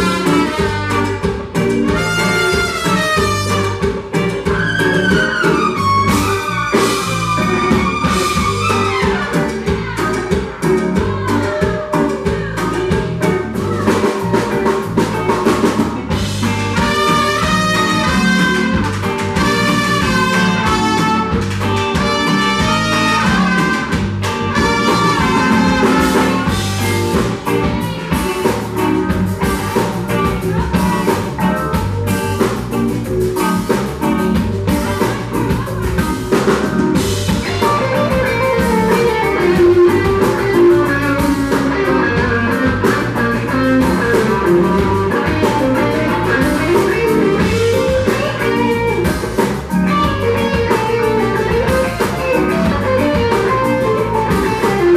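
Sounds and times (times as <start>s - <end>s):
two trumpets playing: 0.0s - 4.0s, 16.8s - 27.2s
drum kit: 0.0s - 54.9s
electric guitar solo: 0.0s - 54.9s.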